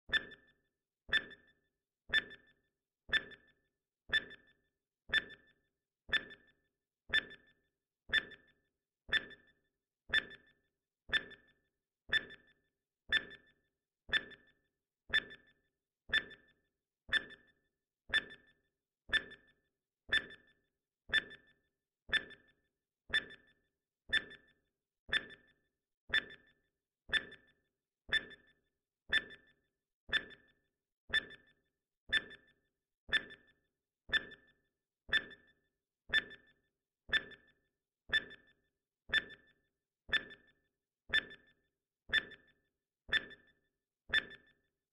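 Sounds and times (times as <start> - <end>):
countdown timer ticks: 0.1 - 44.7.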